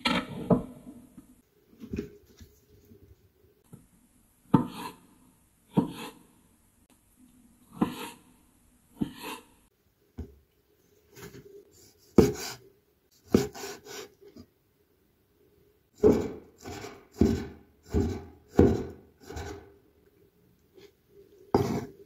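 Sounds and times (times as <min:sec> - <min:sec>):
knife scraping board: 0:07.8 - 0:08.2, 0:16.0 - 0:19.7, 0:21.6 - 0:22.0.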